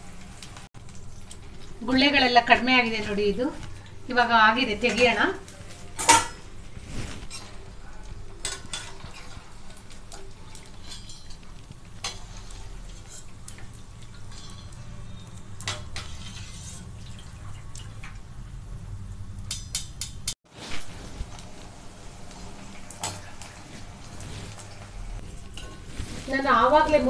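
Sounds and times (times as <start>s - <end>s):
oil sizzling lightly: 0.0s - 27.0s
metal skimmer scraping and clinking: 10.6s - 13.4s, 14.1s - 17.2s.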